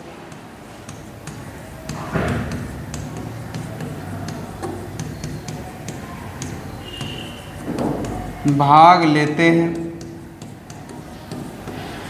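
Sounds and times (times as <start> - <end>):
stylus tapping on glass: 0.3 - 12.0.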